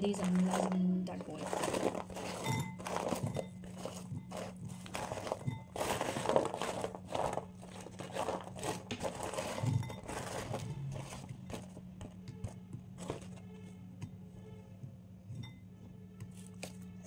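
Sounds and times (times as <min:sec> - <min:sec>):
aluminium foil crinkling: 0:00.0 - 0:12.2.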